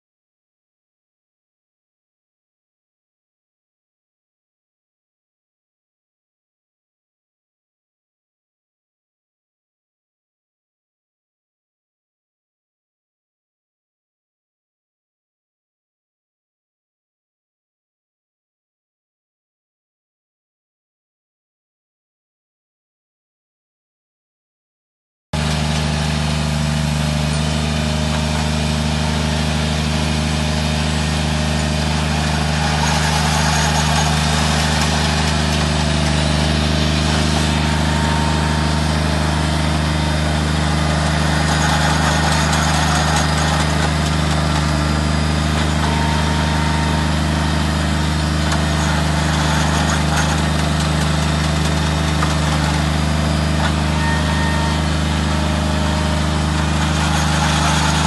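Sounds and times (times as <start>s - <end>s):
engine running steadily: 25.4s - 58.0s.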